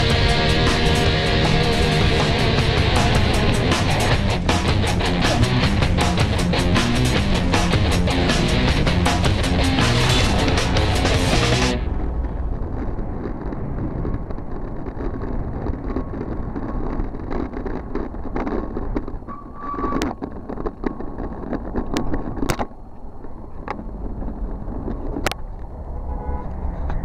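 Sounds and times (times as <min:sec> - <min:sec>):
passing traffic: 0:00.0 - 0:27.0
wind on microphone: 0:11.8 - 0:25.9.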